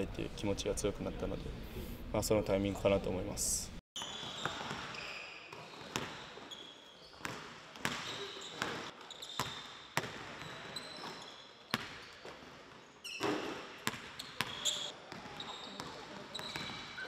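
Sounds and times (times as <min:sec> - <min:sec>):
basketballs bouncing on hardwood: 0:07.2 - 0:11.1, 0:13.2 - 0:16.7.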